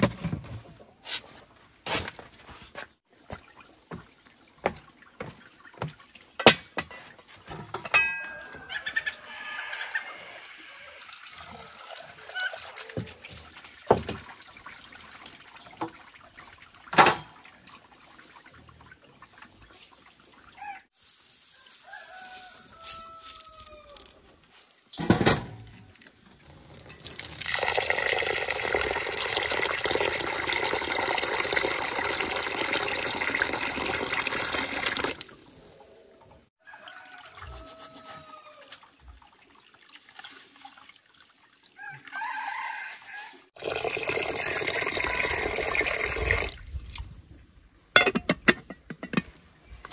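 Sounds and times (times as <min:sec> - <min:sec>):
water running: 0:26.4 - 0:35.7, 0:43.6 - 0:47.0.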